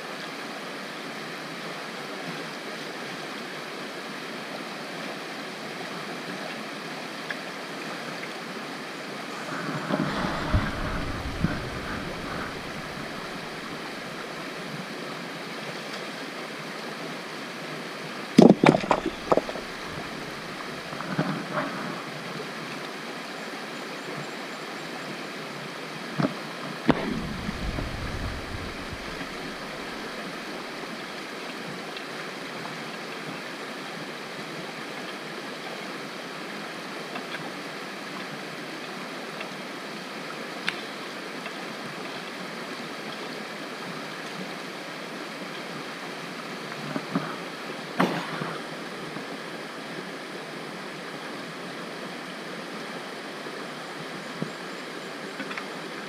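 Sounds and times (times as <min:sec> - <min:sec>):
creek running over stones: 0:00.0 - 0:56.0
rocks clattering on stones: 0:18.4 - 0:20.2.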